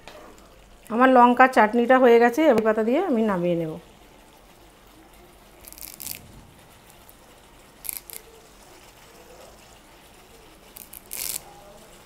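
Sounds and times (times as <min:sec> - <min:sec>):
leaves tearing and crackling: 0:05.6 - 0:07.2, 0:07.8 - 0:08.3, 0:10.7 - 0:11.6.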